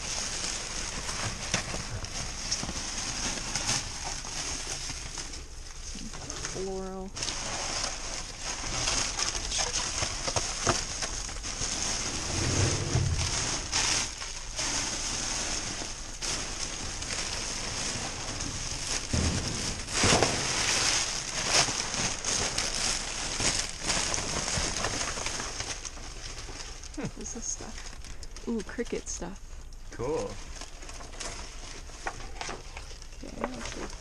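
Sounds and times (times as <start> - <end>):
plastic bags and bubble wrap crinkling: 0.0 - 34.0
items bumping: 6.1 - 28.8.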